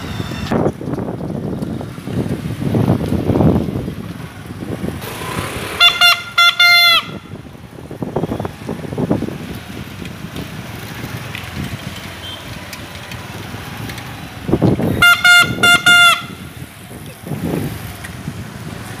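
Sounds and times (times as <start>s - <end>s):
street noise: 0.0s - 19.0s
bicycle air horn honks: 5.7s - 7.4s, 14.8s - 16.6s.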